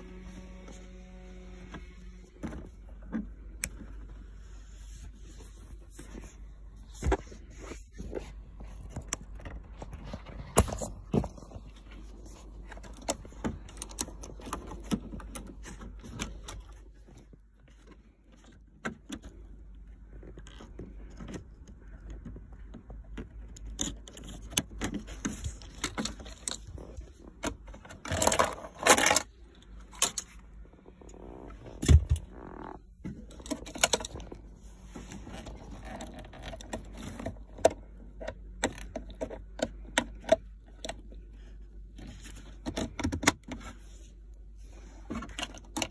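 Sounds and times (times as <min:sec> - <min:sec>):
plastic clicks and rattles: 0:20.2 - 0:30.5.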